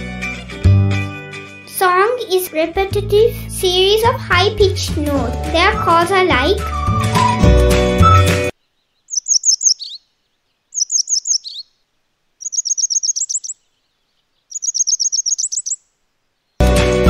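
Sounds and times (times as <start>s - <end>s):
wagtail calling: 8.0s - 11.8s, 12.4s - 15.9s.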